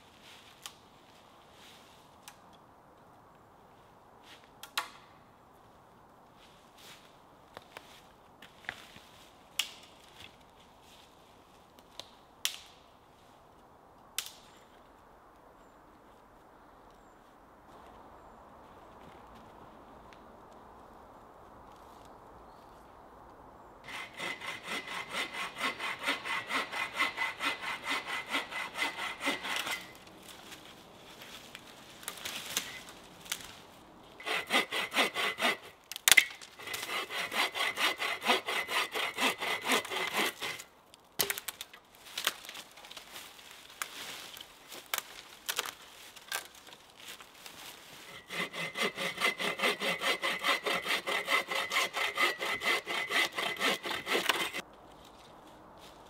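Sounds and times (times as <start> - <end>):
hand saw cutting wood: 23.9 - 30.1, 34.2 - 41.3, 48.0 - 54.6.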